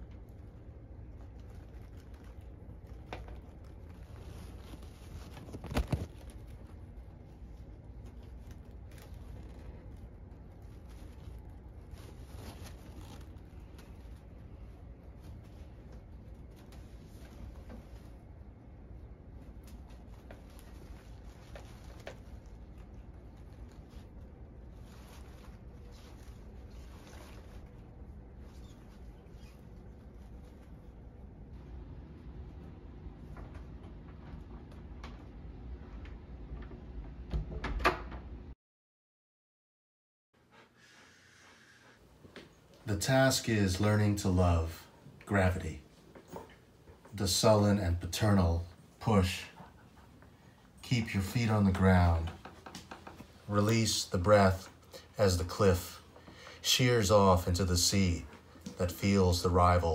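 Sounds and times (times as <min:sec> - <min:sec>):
stems rustling: 0:00.0 - 0:32.6
low steady hum: 0:00.0 - 0:38.5.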